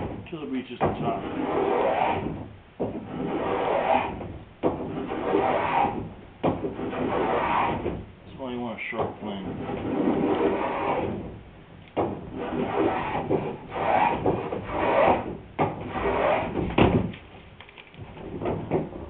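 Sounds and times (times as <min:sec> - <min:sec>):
block plane shaving wood: 0:00.8 - 0:08.0, 0:09.3 - 0:11.4, 0:12.0 - 0:16.7.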